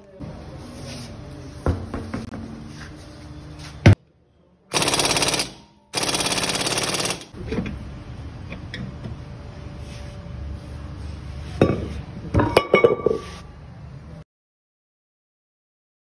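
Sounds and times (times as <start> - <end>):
pneumatic impact wrench rattling: 4.7 - 7.4.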